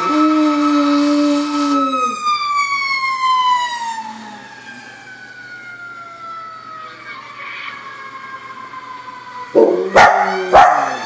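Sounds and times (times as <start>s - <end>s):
fire truck siren wailing: 0.0s - 11.0s.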